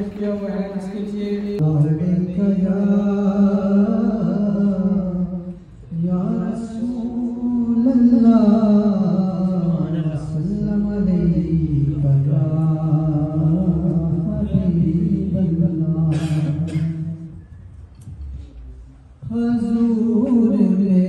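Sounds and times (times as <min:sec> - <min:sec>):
man singing unaccompanied: 0:00.0 - 0:17.4, 0:19.2 - 0:21.0.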